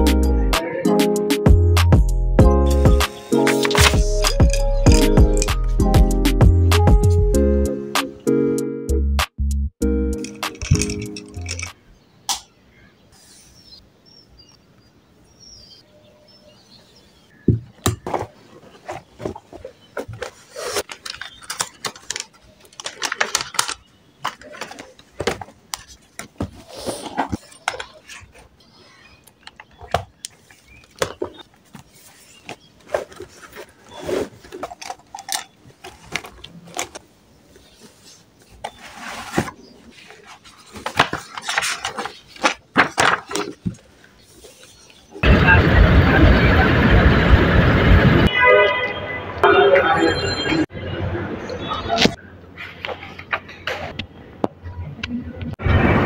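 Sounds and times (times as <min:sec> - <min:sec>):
notebook pages flipping: 0:03.4 - 0:05.6, 0:10.2 - 0:11.8, 0:17.9 - 0:45.2
paper rustling: 0:03.4 - 0:05.6, 0:10.2 - 0:11.8, 0:18.0 - 0:45.2.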